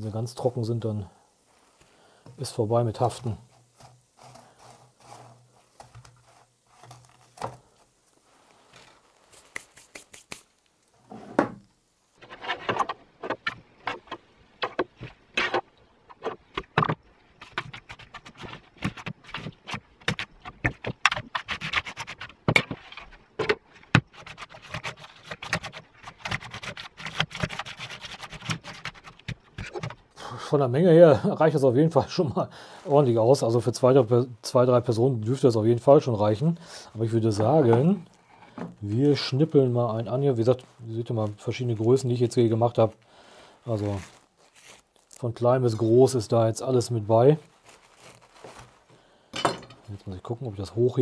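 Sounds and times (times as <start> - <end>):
gritty scraping in sugar: 2.4 - 11.2, 43.6 - 49.0.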